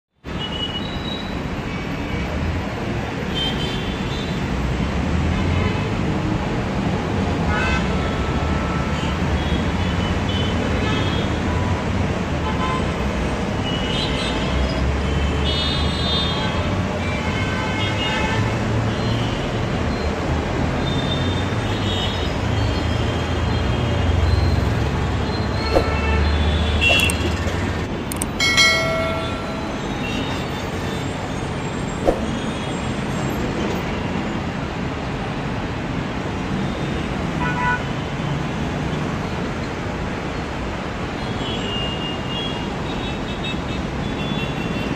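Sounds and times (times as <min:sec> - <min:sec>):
road traffic rumble: 0:01.4 - 0:41.5
sharp clicks: 0:26.8 - 0:28.4.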